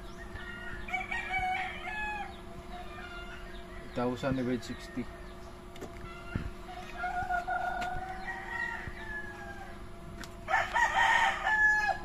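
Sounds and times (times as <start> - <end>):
rooster crowing: 0.2 - 5.3, 6.0 - 12.0.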